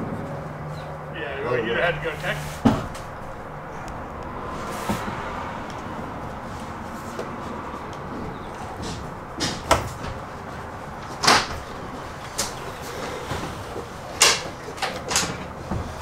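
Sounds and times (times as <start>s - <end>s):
steady background hum: 0.0s - 16.0s
body knocking against truck door: 2.6s - 3.1s.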